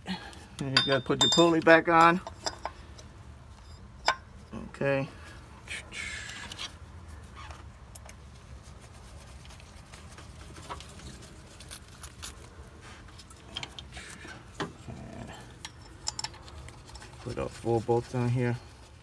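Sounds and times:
metal parts clicking: 15.6 - 17.2.

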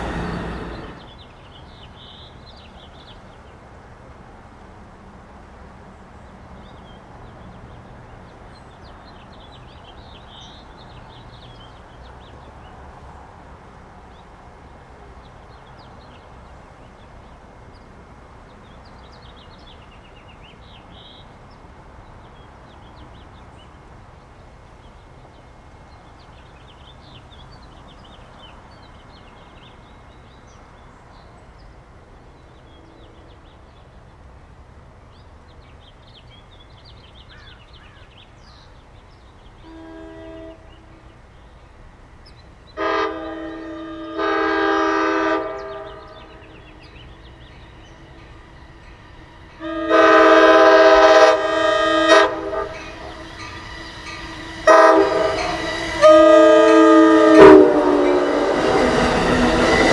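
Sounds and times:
small birds chirping: 35.1 - 39.6, 45.4 - 49.7, 52.3 - 56.0.

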